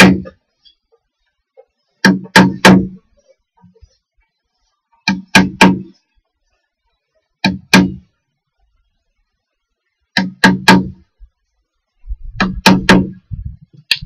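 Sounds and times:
hammer striking chisel: 0.0 - 0.4, 2.0 - 3.0, 5.0 - 5.9, 7.4 - 8.0, 10.2 - 11.0, 12.4 - 13.2.

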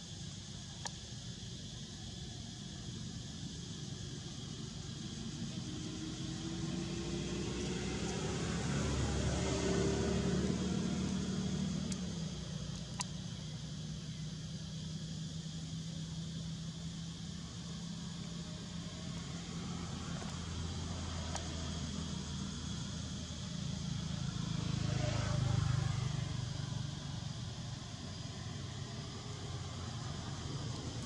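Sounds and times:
vehicle engine passing: 5.0 - 13.7, 17.9 - 31.0.

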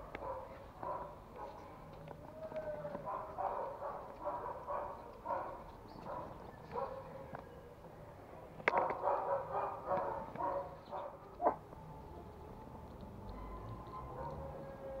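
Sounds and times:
dogs barking: 0.0 - 1.7, 2.9 - 7.2, 8.7 - 11.6, 13.7 - 15.0.

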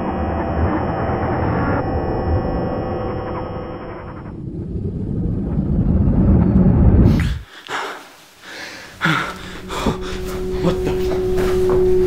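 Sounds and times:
low rumbling drone: 0.0 - 7.4, 9.1 - 12.0
man gasping and breathing hard: 7.1 - 10.6.

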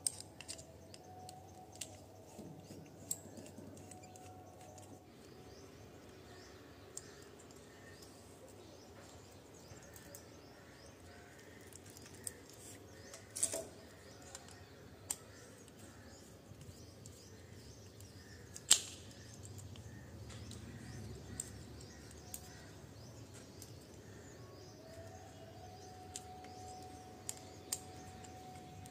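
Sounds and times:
screwdriver and plastic clicks: 0.0 - 4.9.

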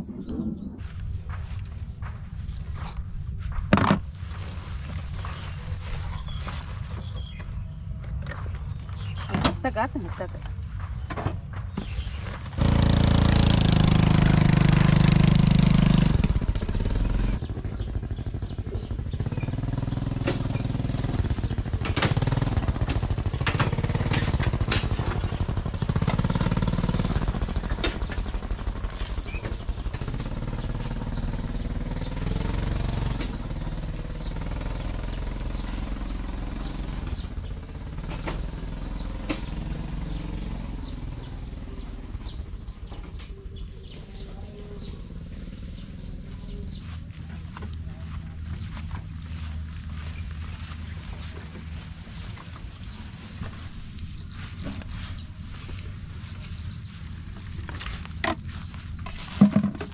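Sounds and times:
small motorcycle engine running: 0.8 - 10.8, 11.8 - 59.9
cart knocks and rattles: 1.2 - 41.1, 54.4 - 59.9.

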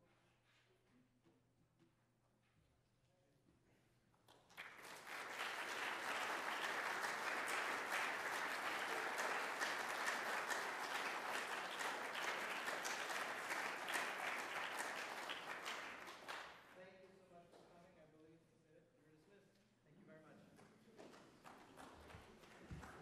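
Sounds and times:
audience applause: 4.5 - 16.7, 21.3 - 23.0.

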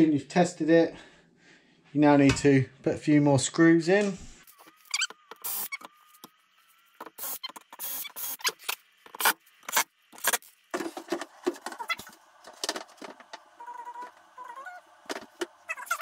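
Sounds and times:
drill driving screws: 4.9 - 5.9.

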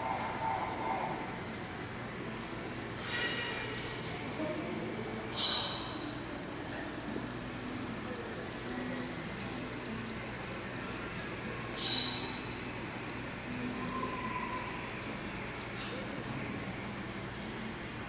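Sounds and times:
short high squeak: 5.4 - 5.9.

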